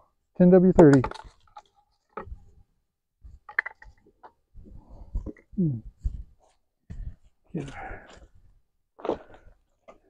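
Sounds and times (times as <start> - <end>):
hands handling plastic bottle: 0.8 - 2.6, 3.3 - 4.4.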